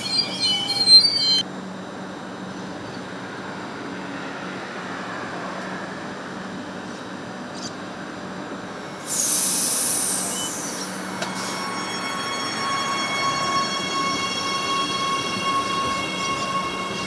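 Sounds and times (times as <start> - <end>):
electric train humming: 0.0 - 17.0
compressed air hiss: 9.0 - 10.8.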